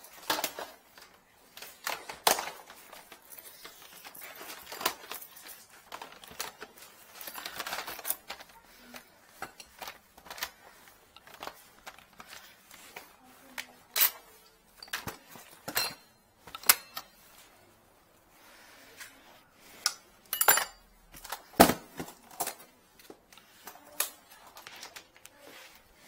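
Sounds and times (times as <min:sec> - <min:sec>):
hand tools clattering in metal case: 0:14.0 - 0:17.1.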